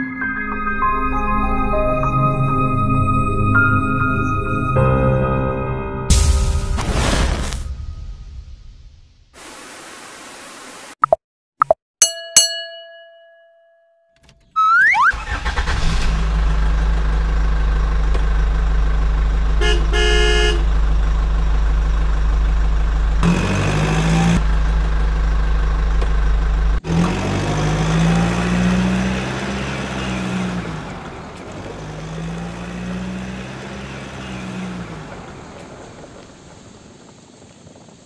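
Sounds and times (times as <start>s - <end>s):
bell-like chime: 0.0s - 4.7s, 12.0s - 14.2s
rising whoosh: 6.1s - 9.4s
noisy burst: 6.1s - 11.0s
truck engine running: 15.1s - 37.6s
horn honks: 19.5s - 20.9s.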